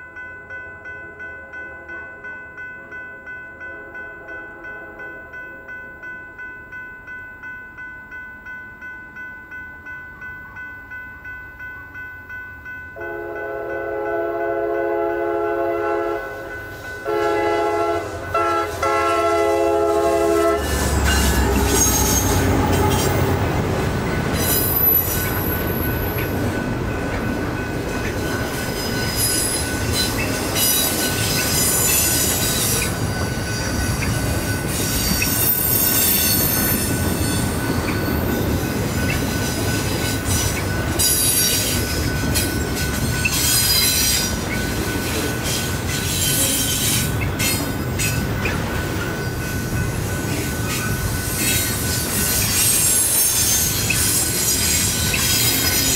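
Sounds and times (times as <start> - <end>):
train cars rumbling: 12.6 - 55.9
train horn blasts: 13.0 - 23.4
wheel squeal: 20.6 - 23.1, 51.2 - 55.9.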